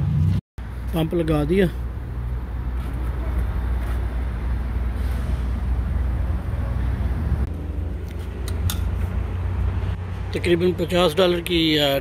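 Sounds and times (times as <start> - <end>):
sharp pump nozzle clicks: 8.1 - 9.0.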